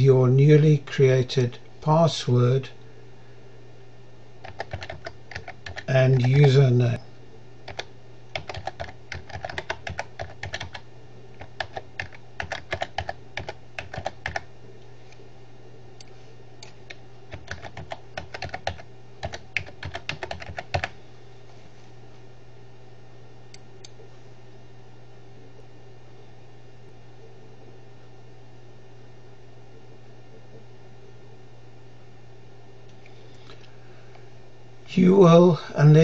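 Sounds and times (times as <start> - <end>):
keyboard typing: 4.4 - 6.6, 7.7 - 10.8, 11.4 - 14.5, 16.6 - 20.9.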